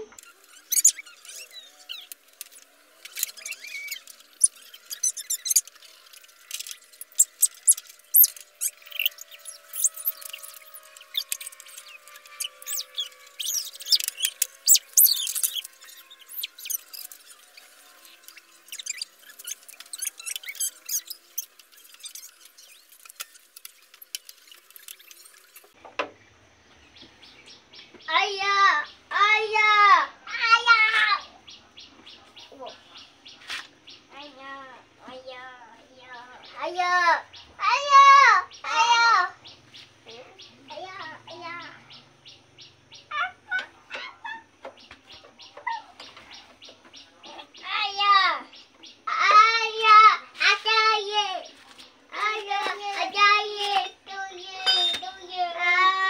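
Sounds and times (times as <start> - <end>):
short high squeaks: 0.2 - 25.8, 54.6 - 55.3.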